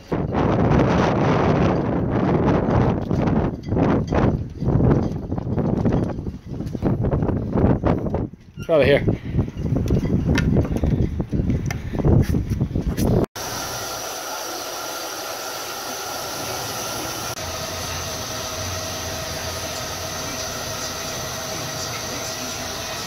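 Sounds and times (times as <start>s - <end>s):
hair dryer blowing: 13.4s - 23.0s.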